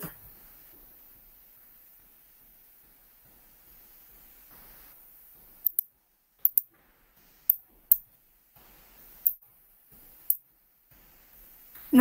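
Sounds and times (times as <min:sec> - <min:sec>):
faint background hiss: 0:00.0 - 0:12.0
computer mouse clicks: 0:05.6 - 0:05.9.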